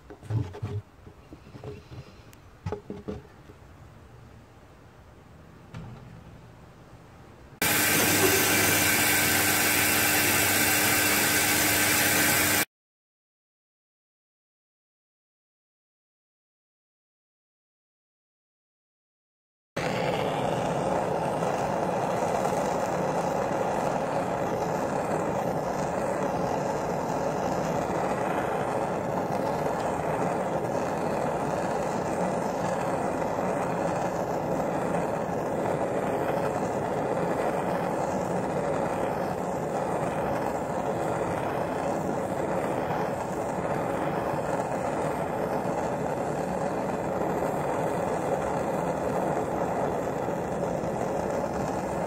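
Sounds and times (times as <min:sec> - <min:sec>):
blowtorch flame roaring: 0:07.6 - 0:12.7, 0:19.8 - 0:52.0.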